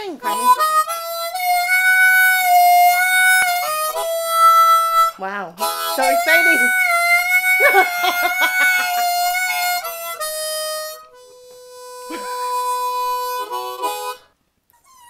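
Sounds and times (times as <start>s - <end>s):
blues harmonica playing: 0.0s - 15.0s.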